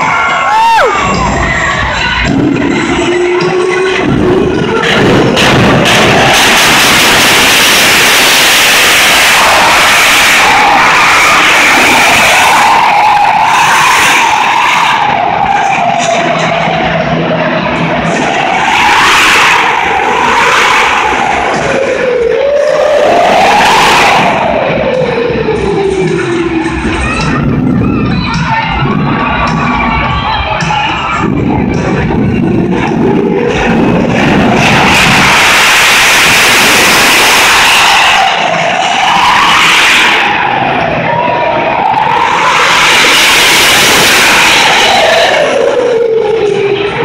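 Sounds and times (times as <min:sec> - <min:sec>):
exhaust rushing: 0:00.0 - 0:47.0
jet engine whine: 0:00.0 - 0:47.0.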